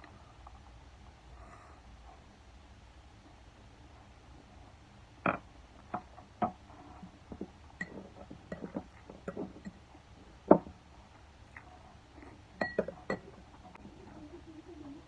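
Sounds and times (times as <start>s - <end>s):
utensils tapping a plate: 12.6s - 13.4s.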